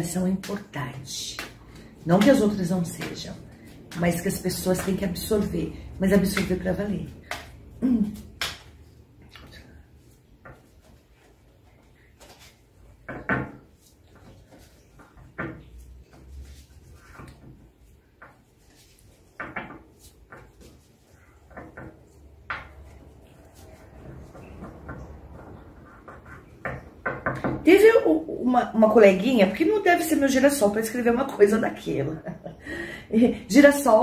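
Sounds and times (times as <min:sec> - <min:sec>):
cards being shuffled: 0:11.8 - 0:12.7.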